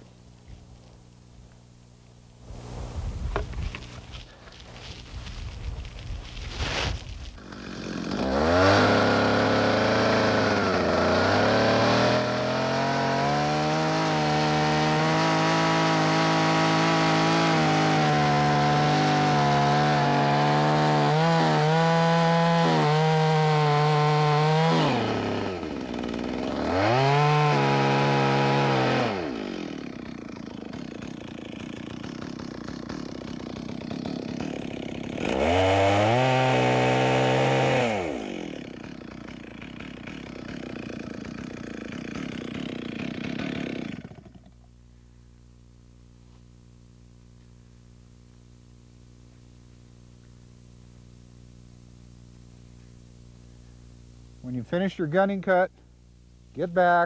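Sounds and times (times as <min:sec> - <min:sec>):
chainsaw cutting a tree: 0:02.4 - 0:44.8
chainsaw idling and revving: 0:03.4 - 0:44.7.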